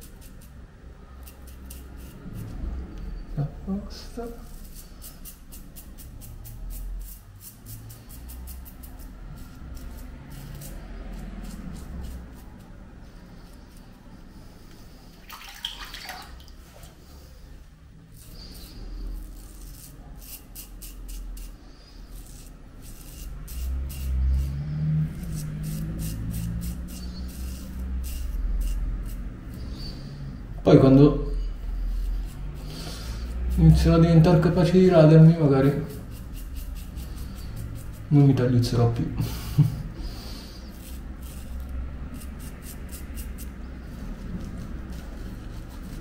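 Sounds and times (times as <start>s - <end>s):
razor scraping beard stubble: 0.0s - 3.1s, 3.9s - 14.9s, 18.1s - 30.5s, 31.4s - 46.0s
steady low hum: 16.5s - 46.0s.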